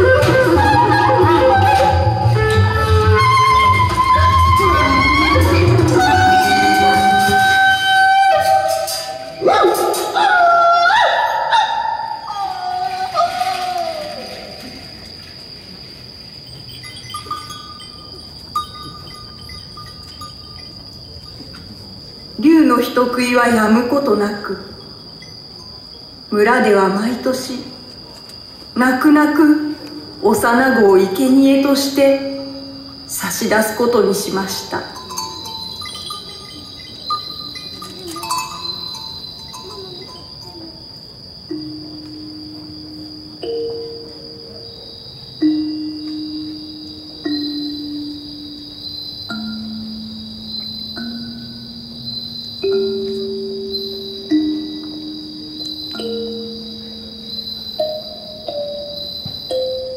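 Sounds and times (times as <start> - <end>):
crickets trilling: 0.0 - 59.9
soft ringing tones: 15.6 - 22.5, 32.0 - 59.9
chime-like notes: 16.5 - 21.6, 34.9 - 40.6, 45.4 - 59.9.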